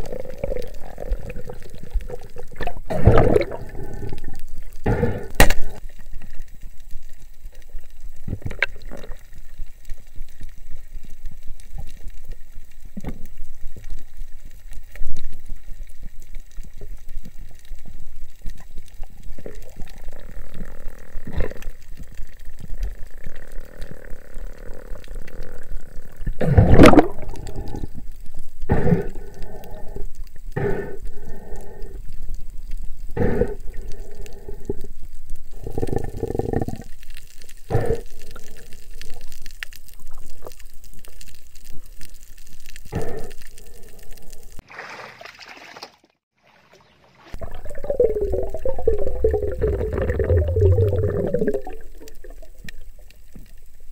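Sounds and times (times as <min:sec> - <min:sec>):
underwater rush of water: 0:00.0 - 0:53.9
water gurgling surges: 0:26.4 - 0:27.6, 0:47.3 - 0:52.5.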